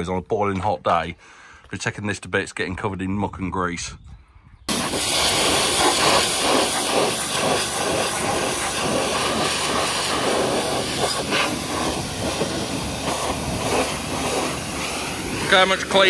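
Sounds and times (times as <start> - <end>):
pressure washer spraying metal: 4.7 - 16.0.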